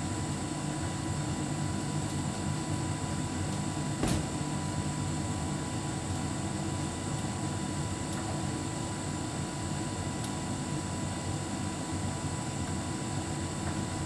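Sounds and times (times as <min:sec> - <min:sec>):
tumble dryer humming: 0:03.8 - 0:05.2
sharp knock: 0:04.0 - 0:04.4.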